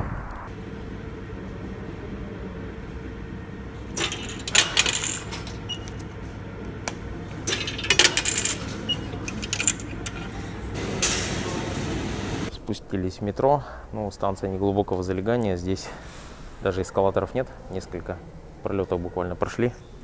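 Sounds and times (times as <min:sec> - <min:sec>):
plastic token clattering into metal tray: 0:04.0 - 0:05.9, 0:07.4 - 0:11.4.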